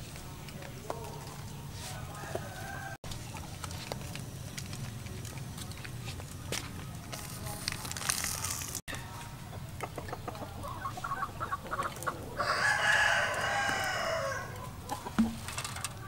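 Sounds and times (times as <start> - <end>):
rooster crowing: 2.1 - 3.0, 12.3 - 14.8.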